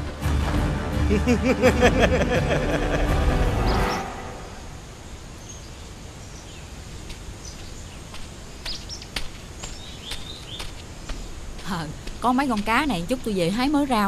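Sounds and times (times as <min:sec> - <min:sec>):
steady background hiss: 0:01.2 - 0:14.0
bird chirps: 0:05.4 - 0:11.4.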